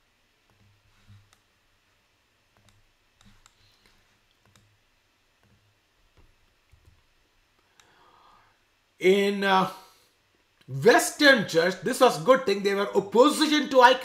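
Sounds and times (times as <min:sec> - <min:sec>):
computer mouse and keyboard clicks: 0:00.5 - 0:01.5, 0:02.5 - 0:04.8, 0:05.4 - 0:07.1.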